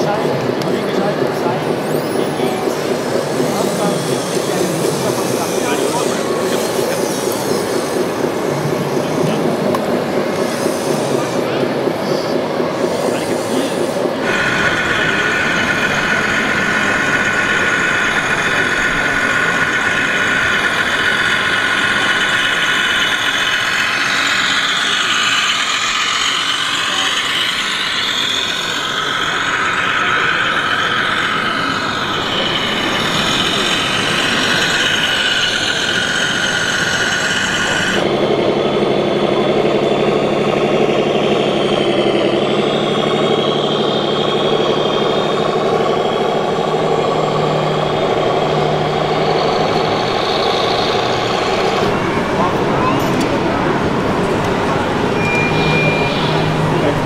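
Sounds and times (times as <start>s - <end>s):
diesel engine idle sound unit: 0.0s - 57.0s
model trucks whining and squealing: 0.0s - 57.0s.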